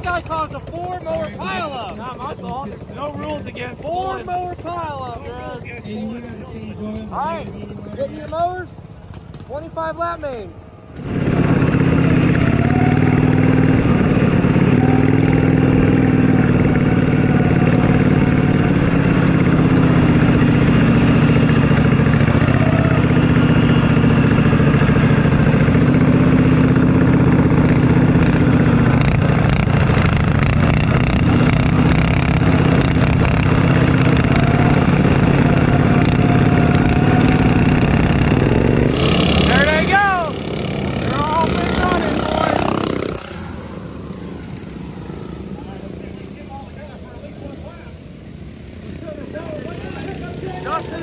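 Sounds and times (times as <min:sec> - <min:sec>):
other mowers running: 0:10.3 - 0:51.0
lawn mower engine running hard: 0:11.0 - 0:51.0.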